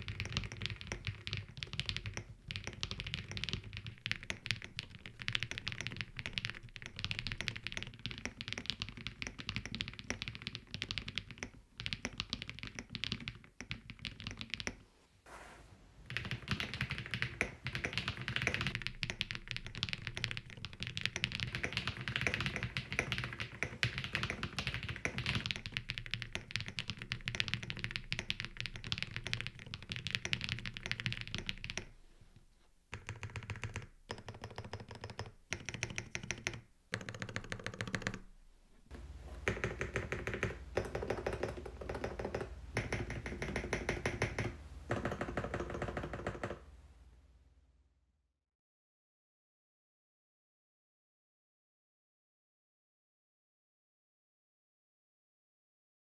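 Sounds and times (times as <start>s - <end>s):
clacky mechanical keyboard typing: 0.0s - 14.8s, 16.1s - 32.0s, 32.9s - 38.2s, 39.4s - 46.6s.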